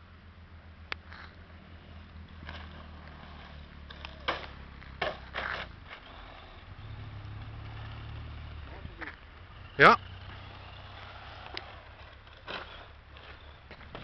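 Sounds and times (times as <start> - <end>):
toy truck driving on dirt: 0.0 - 14.0.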